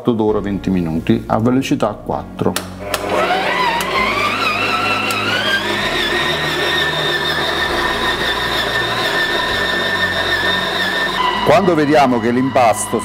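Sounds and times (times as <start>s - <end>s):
stand mixer motor whine: 2.6s - 13.0s.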